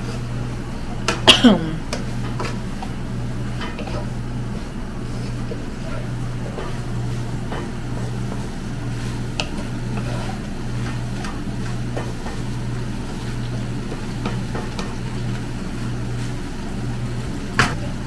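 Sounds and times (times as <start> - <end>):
steady low hum: 0.0 - 18.0
spatula scraping a wok: 1.9 - 15.0.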